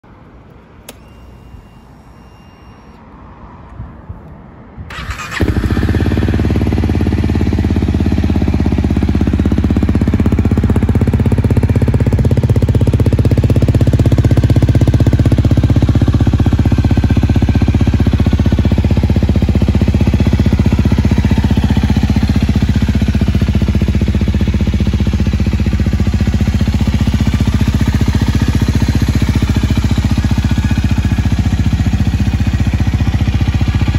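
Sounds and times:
faint starter whine: 0.4 - 3.0
motorcycle engine idling: 4.9 - 33.9.

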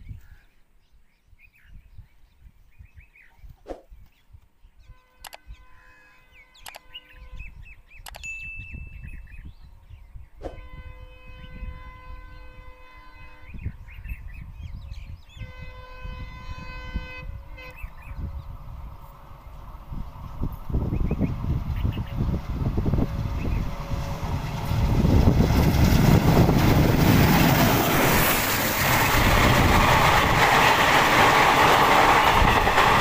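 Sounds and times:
birds chirping: 0.1 - 10.6, 11.2 - 22.3
locomotive horn blasts: 4.9 - 7.6, 10.5 - 13.8, 15.4 - 18.0
low engine rumble: 16.0 - 33.0.

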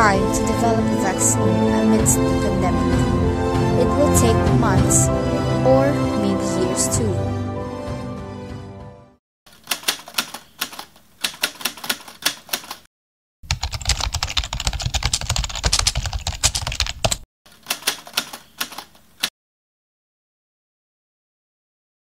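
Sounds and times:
rapid keyboard key clacks: 9.5 - 19.3.

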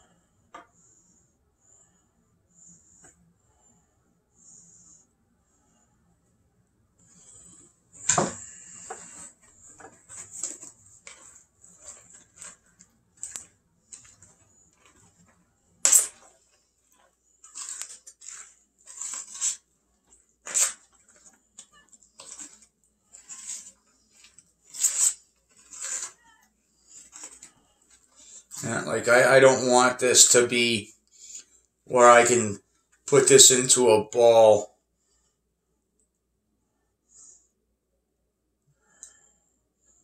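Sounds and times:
spoon stirring dough in bowl: 7.0 - 28.6.

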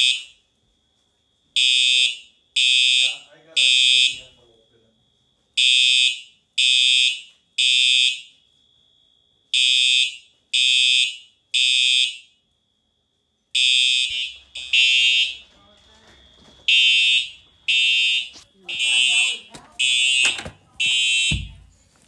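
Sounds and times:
fire alarm horn blasts: 1.6 - 4.3, 9.6 - 12.4, 13.6 - 15.5, 16.7 - 21.5.

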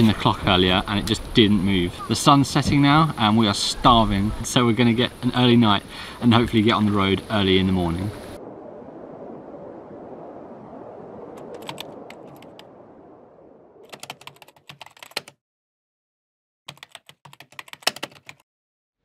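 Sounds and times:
low rushing outdoor ambience: 0.0 - 13.4
keyboard keys clacking: 13.9 - 15.3, 16.7 - 18.4.

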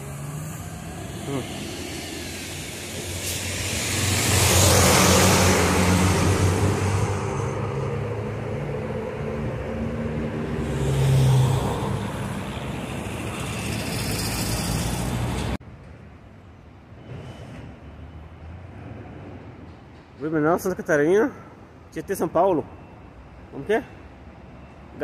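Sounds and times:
loud rushing hiss: 0.0 - 7.7
diesel bus engine: 0.0 - 15.6.

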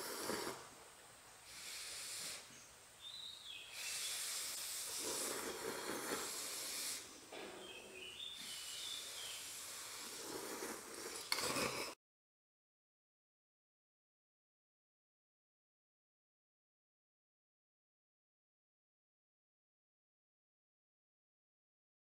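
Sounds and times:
people slurping noodles: 3.9 - 7.0, 9.6 - 12.0.

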